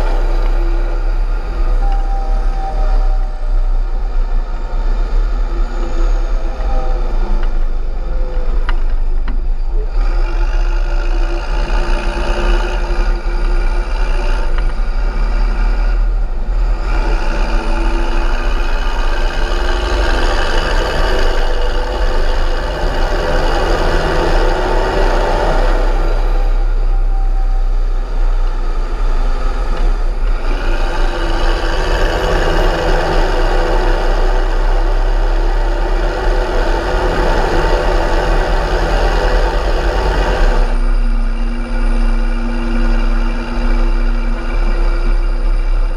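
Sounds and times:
turbo whistle: 0.0s - 10.4s, 17.0s - 29.7s
tractor diesel engine running: 0.0s - 45.9s.

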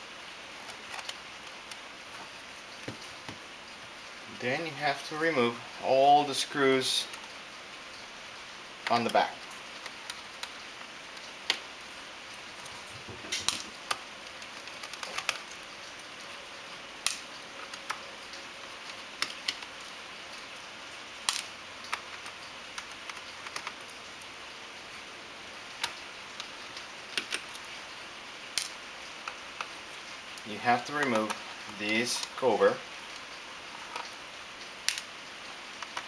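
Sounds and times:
background hiss: 0.0s - 36.0s.

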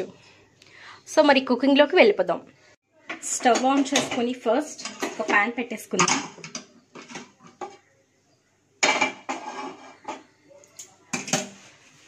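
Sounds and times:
frying pan clanking on grate: 8.8s - 10.2s
light knocks and scrapes: 9.2s - 10.3s.

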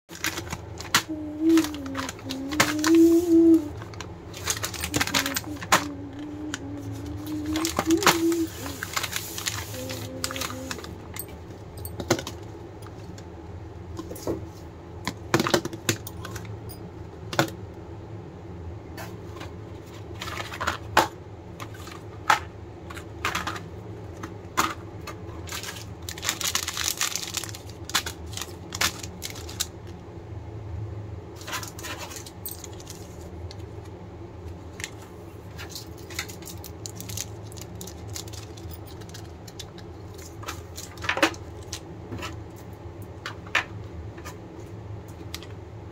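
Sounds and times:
plastic wrappers crinkling: 0.1s - 11.3s, 25.4s - 29.8s, 31.4s - 33.6s, 35.6s - 41.8s.

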